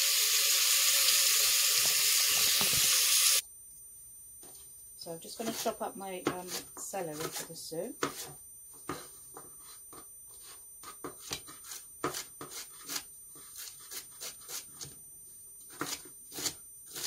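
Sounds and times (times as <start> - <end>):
knife chopping celery on board: 5.4 - 8.3.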